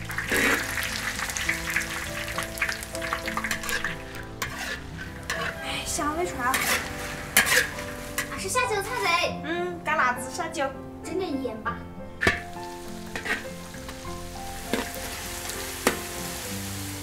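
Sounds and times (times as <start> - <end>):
chillies sizzling in hot oil: 0.0 - 9.3, 12.1 - 17.0
spatula scraping a wok: 0.3 - 9.3, 12.2 - 16.4.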